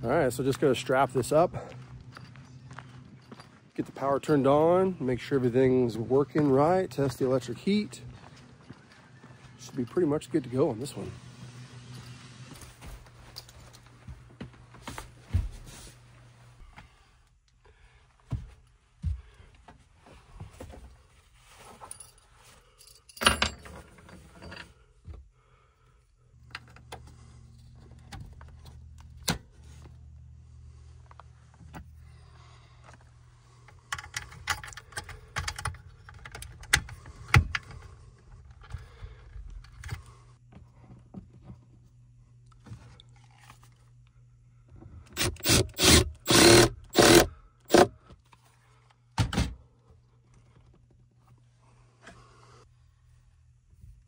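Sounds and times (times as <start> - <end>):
steady low hum: 0.0 - 54.0
metal parts clinking and rattling: 21.8 - 24.7.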